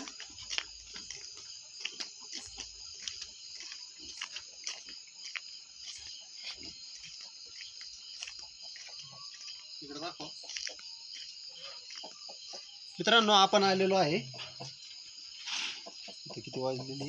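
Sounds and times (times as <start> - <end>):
soft footsteps: 0.0 - 13.0
crickets chirring: 0.0 - 17.0.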